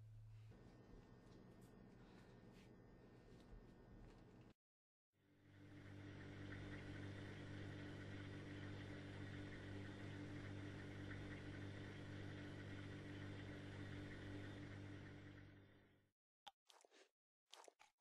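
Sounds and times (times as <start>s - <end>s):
low hum: 5.4s - 16.0s.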